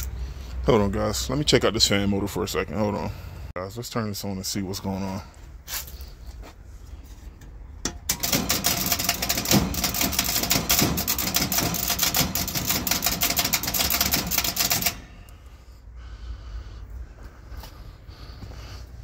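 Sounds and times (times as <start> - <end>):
contactor rapid clicking: 7.9 - 15.3.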